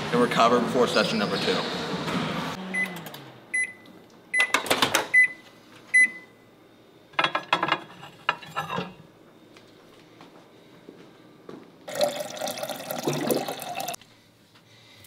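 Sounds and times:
microwave oven beeping: 0:02.6 - 0:07.5.

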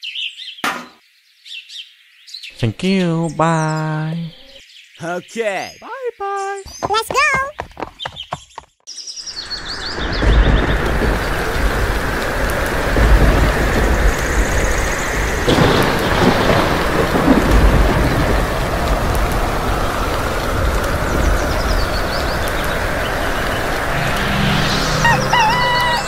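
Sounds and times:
steady rain: 0:09.3 - 0:26.0
thunder rumbling: 0:09.4 - 0:26.0
sharp thunderclap: 0:09.6 - 0:25.9.

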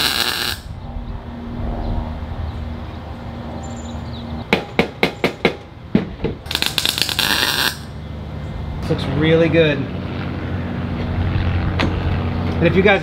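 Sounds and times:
welder crackling buzz: 0:00.0 - 0:00.7, 0:06.4 - 0:08.0
steady low hum: 0:00.0 - 0:13.0.

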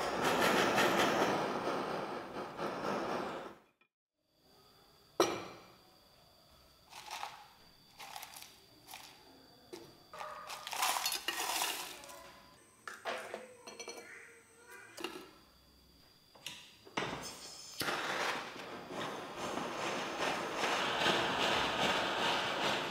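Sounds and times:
granules clinking into steel bowl: 0:10.2 - 0:12.3
gas torch flame hissing: 0:17.0 - 0:22.9.

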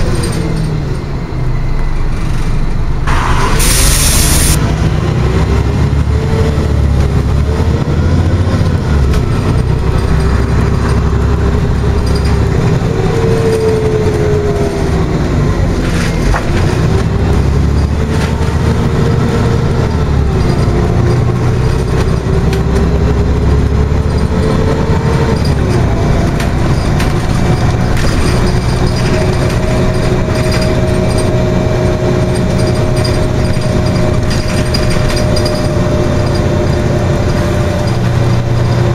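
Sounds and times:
bus engine and road rumble: 0:00.0 - 0:38.9.

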